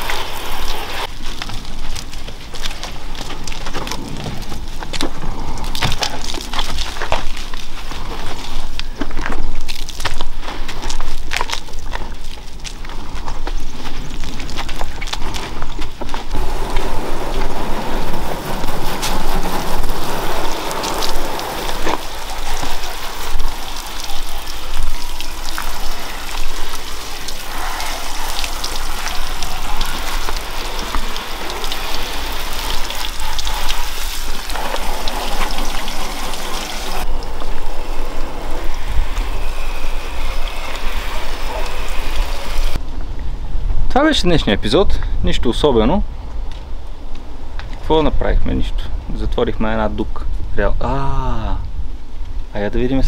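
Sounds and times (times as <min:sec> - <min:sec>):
hose water spraying on a car: 0:00.0 - 0:08.8, 0:16.3 - 0:42.8.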